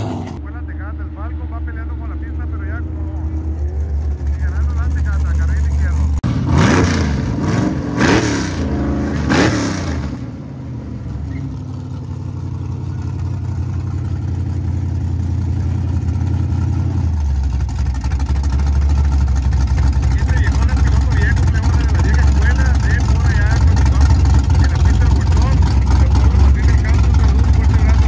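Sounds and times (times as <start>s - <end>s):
deep low rumble: 0.0s - 8.0s, 9.9s - 28.0s
race car engine revving: 0.0s - 28.0s.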